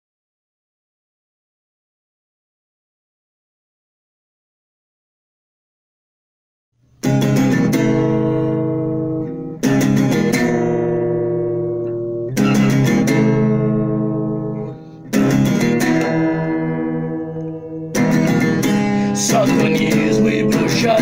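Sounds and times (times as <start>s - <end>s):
acoustic guitar strumming chords: 7.0s - 21.0s.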